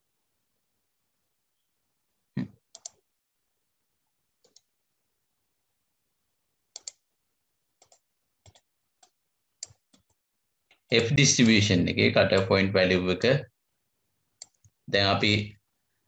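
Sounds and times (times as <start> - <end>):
computer mouse clicks: 2.7 - 3.0, 4.4 - 4.7, 6.7 - 7.0, 7.8 - 11.6, 14.4 - 14.8.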